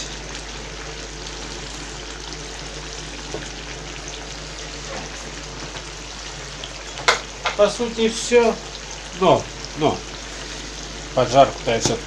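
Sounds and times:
sauce sizzling and bubbling: 0:00.0 - 0:12.0.

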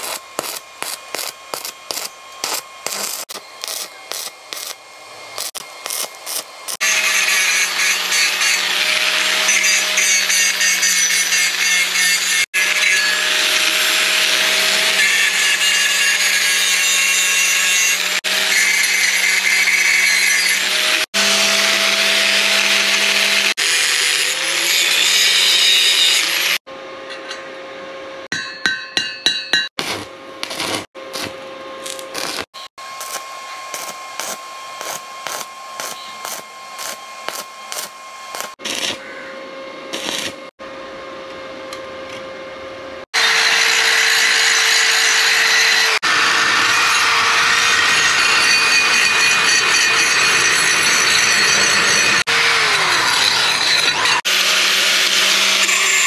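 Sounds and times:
angle grinder grinding metal: 0:00.0 - 0:27.5, 0:29.8 - 0:39.3, 0:39.9 - 0:40.5, 0:43.2 - 0:56.0.

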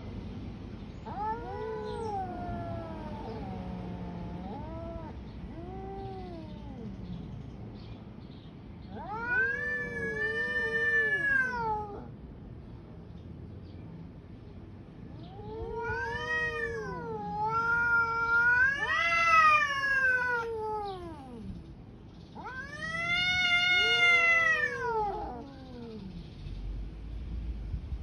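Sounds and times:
cats yowling: 0:01.0 - 0:07.3, 0:08.9 - 0:12.2, 0:15.1 - 0:21.6, 0:22.3 - 0:26.3.

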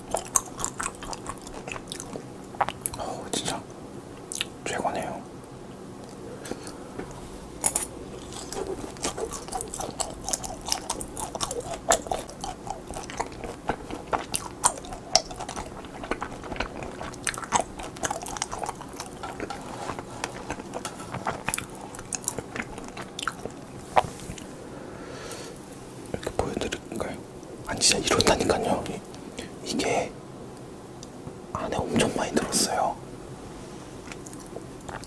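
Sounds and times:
crunchy wet chewing: 0:00.0 - 0:03.6, 0:04.2 - 0:04.6, 0:07.5 - 0:24.6, 0:34.0 - 0:35.0.

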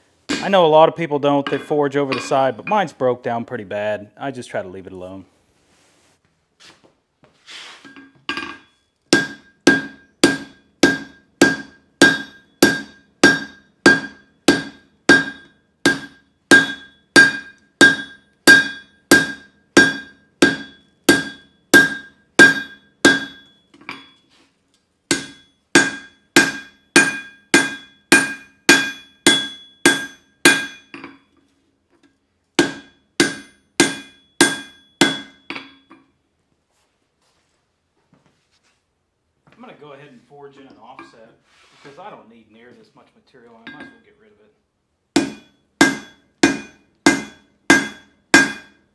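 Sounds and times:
hammer striking metal on anvil: 0:00.3 - 0:00.7, 0:01.4 - 0:02.9, 0:07.9 - 0:24.2, 0:25.1 - 0:31.4, 0:32.6 - 0:36.1, 0:43.6 - 0:44.1, 0:45.2 - 0:48.9.

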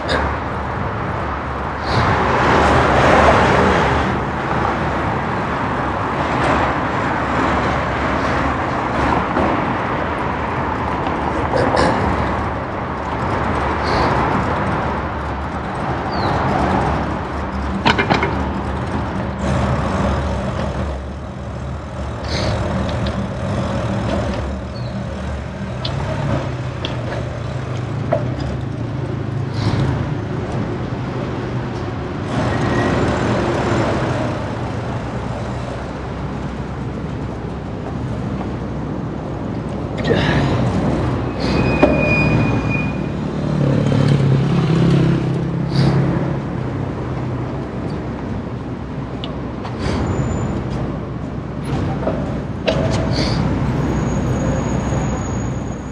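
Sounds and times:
traffic engine hum: 0:00.0 - 0:55.9
sharp clicks or knocks: 0:17.8 - 0:18.5.

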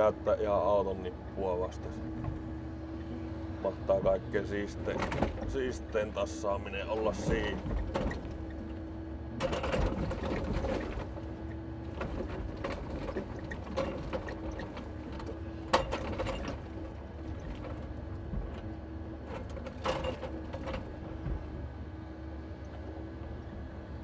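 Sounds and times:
crane hum: 0:00.0 - 0:24.0
logs knocking and clattering: 0:07.0 - 0:21.6.

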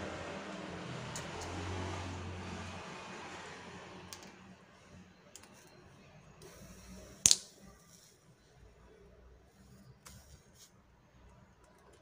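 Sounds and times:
low rumble of passing vehicle: 0:00.0 - 0:05.2.

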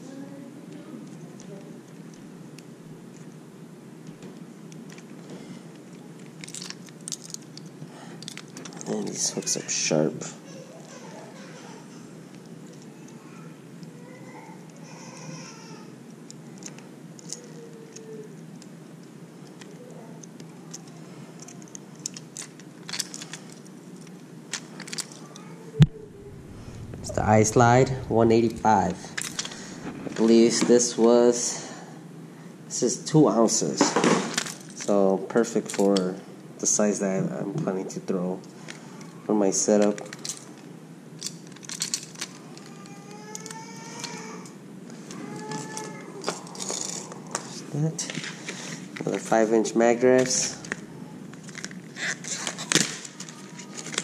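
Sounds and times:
faint steady hum: 0:00.0 - 0:54.0
treble hooks rattling: 0:26.0 - 0:30.4.

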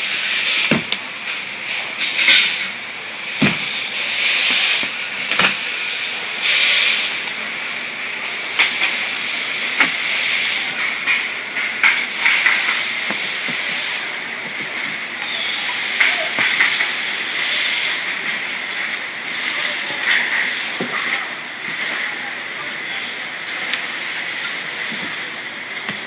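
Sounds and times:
steady hiss: 0:00.0 - 0:26.0
cardboard flaps scraping and knocking: 0:03.4 - 0:03.7.

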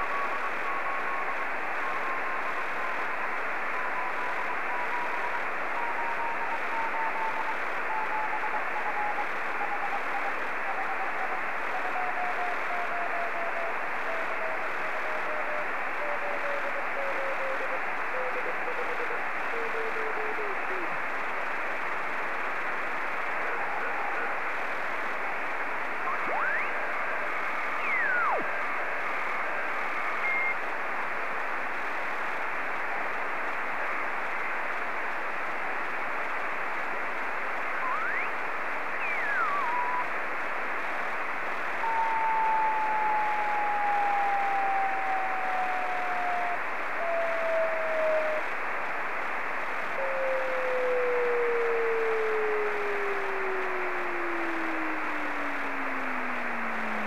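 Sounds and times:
sweeping whistle: 0:00.0 - 0:14.6, 0:26.0 - 0:30.6, 0:37.8 - 0:40.1, 0:41.8 - 0:48.4
radio static hiss: 0:00.0 - 0:57.0
carrier tone falling in pitch: 0:26.1 - 0:26.9, 0:27.5 - 0:28.6, 0:37.8 - 0:40.1.

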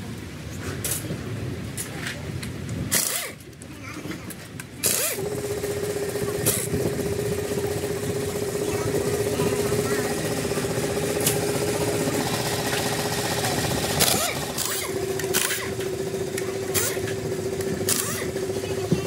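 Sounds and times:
machine humming: 0:04.8 - 0:19.0.

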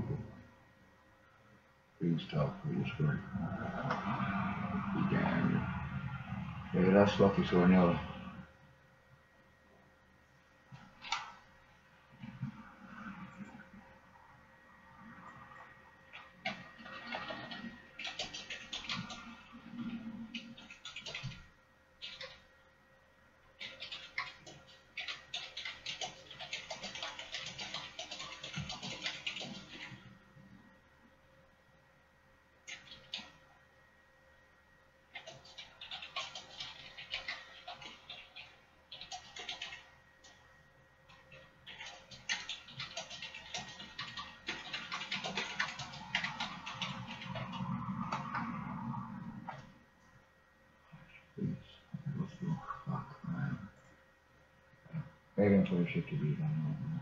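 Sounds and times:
rapid typing on keyboard: 0:16.1 - 0:22.4, 0:23.6 - 0:30.1, 0:32.7 - 0:33.4, 0:35.1 - 0:40.4, 0:41.1 - 0:48.6.

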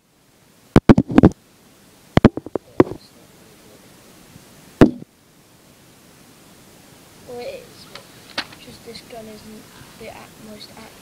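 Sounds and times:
toy gun handling knocks and clicks: 0:08.3 - 0:08.6.

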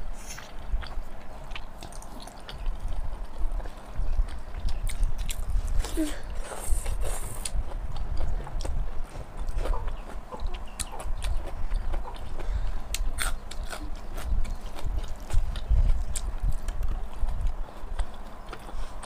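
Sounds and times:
chewing and lip-smacking: 0:00.2 - 0:19.0.

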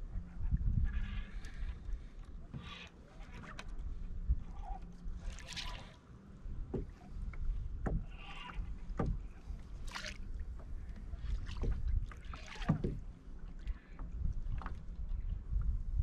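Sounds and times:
low wind rumble: 0:00.0 - 0:02.8, 0:03.4 - 0:16.0
water lapping against kayak hull: 0:00.0 - 0:16.0
water splashing: 0:05.2 - 0:06.0, 0:06.7 - 0:14.8.

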